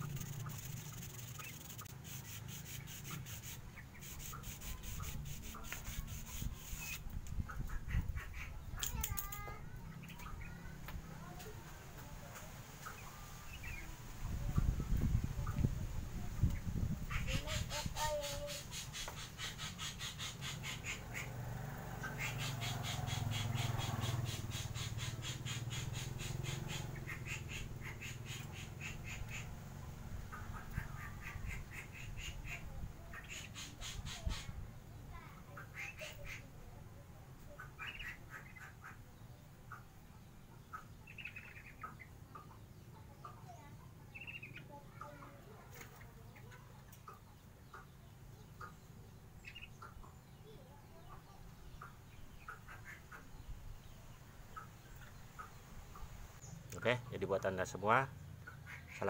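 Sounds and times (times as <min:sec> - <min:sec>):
glove rubbing along fishing rod: 0:00.0 - 0:07.1
rapid animal calls: 0:00.0 - 0:08.6, 0:16.9 - 0:36.5, 0:37.5 - 0:40.0, 0:58.1 - 0:59.0
bird chirps: 0:00.0 - 0:11.4, 0:16.4 - 0:21.4, 0:22.0 - 0:29.6, 0:37.5 - 0:59.0.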